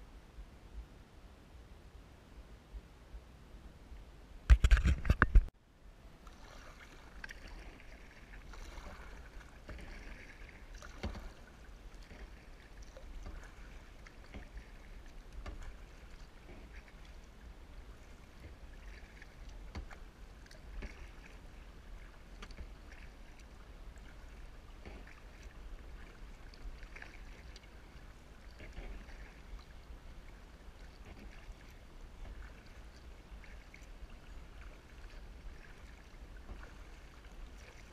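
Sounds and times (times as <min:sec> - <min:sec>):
paddle splashing: 0:06.2 - 0:37.9
water dripping and trickling: 0:08.6 - 0:17.2.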